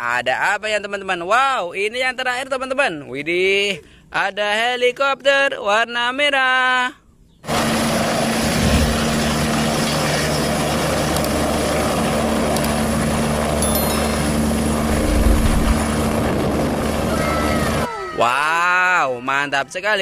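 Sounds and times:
helicopter rotor and turbine engine: 0:07.5 - 0:17.9.

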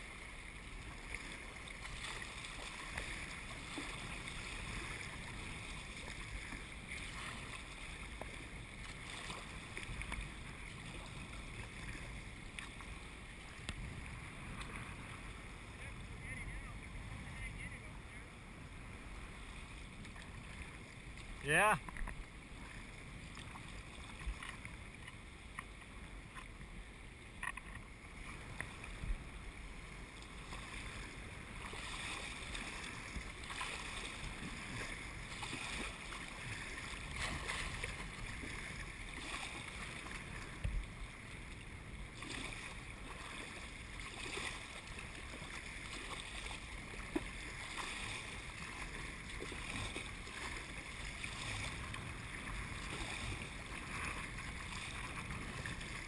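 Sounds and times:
water slapping against kayak hull: 0:00.6 - 0:15.8, 0:27.4 - 0:56.0.

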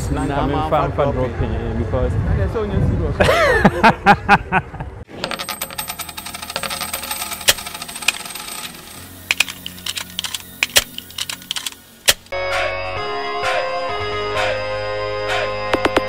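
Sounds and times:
sharp clicks and ticks: 0:06.4 - 0:12.3.

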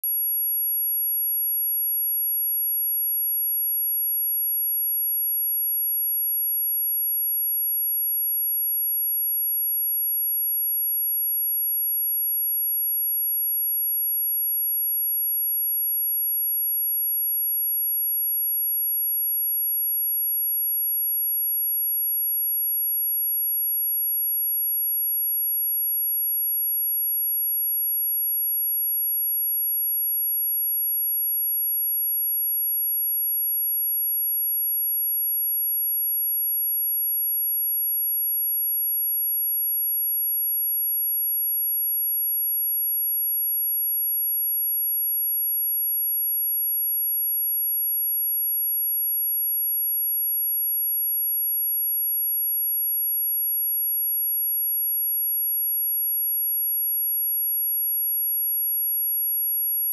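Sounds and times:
high sine-wave test tone: 0:00.0 - 0:04.5, 0:53.8 - 0:59.9.

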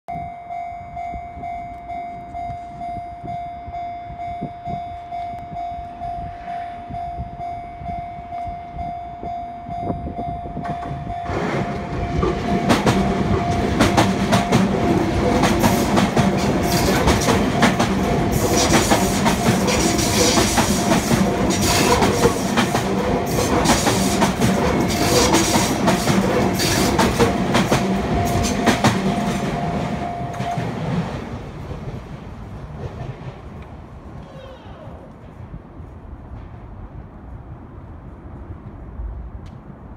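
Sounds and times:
level-crossing warning bell ringing: 0:00.1 - 0:31.4
train wheels clattering over rail joints: 0:10.7 - 0:33.8.

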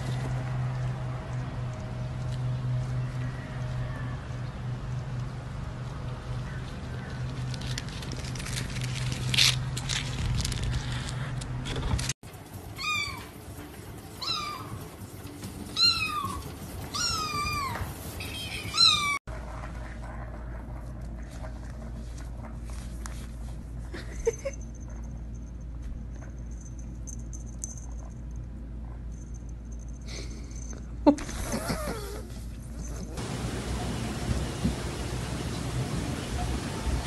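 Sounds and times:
cat meowing: 0:14.2 - 0:14.8, 0:15.8 - 0:19.2.

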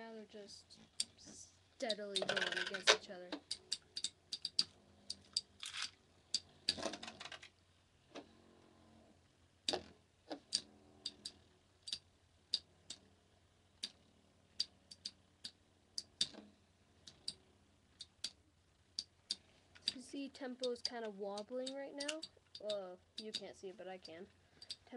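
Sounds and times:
spinning tops clacking together: 0:01.9 - 0:04.6.

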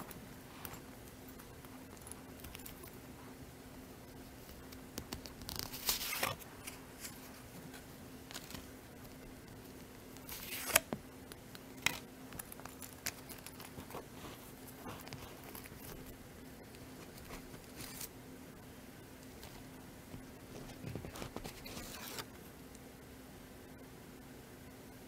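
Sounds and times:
paper rustling and scraping: 0:05.2 - 0:08.7, 0:10.3 - 0:10.9, 0:17.0 - 0:18.1, 0:20.5 - 0:22.3.

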